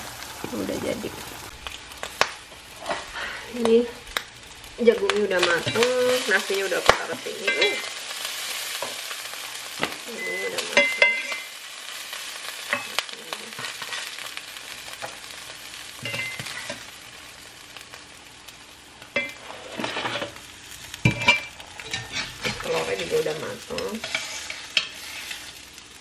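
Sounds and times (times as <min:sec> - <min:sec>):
corn sizzling in a skillet: 0:00.0 - 0:26.0
spatula scraping a pan: 0:05.5 - 0:14.3, 0:14.9 - 0:17.0, 0:19.1 - 0:25.8.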